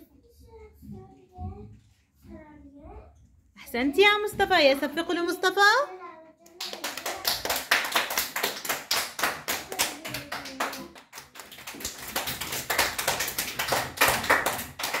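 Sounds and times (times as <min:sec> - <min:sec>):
children clapping hands: 0:06.5 - 0:15.0.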